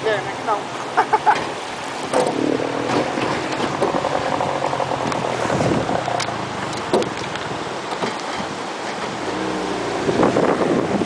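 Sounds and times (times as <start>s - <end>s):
river water rushing around hull: 0.0s - 11.0s
outboard motor running: 1.8s - 7.8s, 8.4s - 11.0s.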